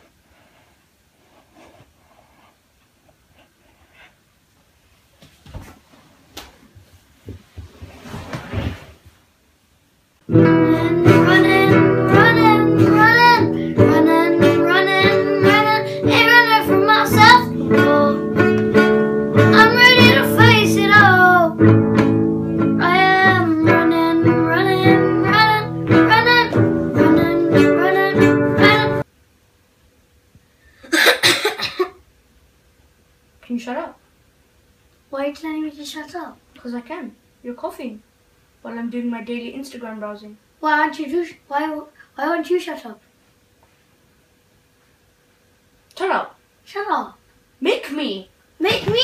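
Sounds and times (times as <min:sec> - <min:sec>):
rustling: 0:00.0 - 0:09.4
guitar music with singing: 0:10.3 - 0:29.0.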